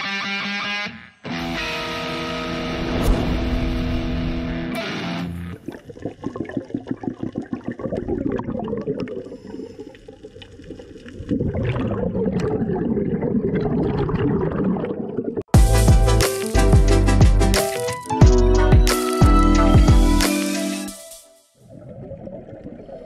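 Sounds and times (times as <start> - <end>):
distorted electric guitar chord: 1.3 - 2.7
air bubbles gurgling underwater: 5.5 - 15.5, 21.6 - 23.0.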